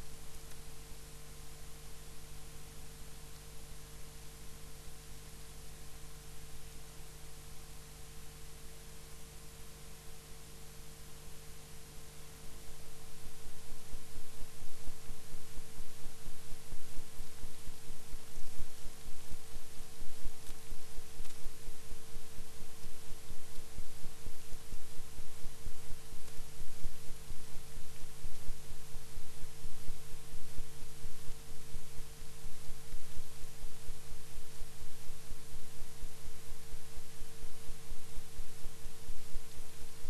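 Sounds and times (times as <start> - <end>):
projector motor hum: 0.0 - 40.0.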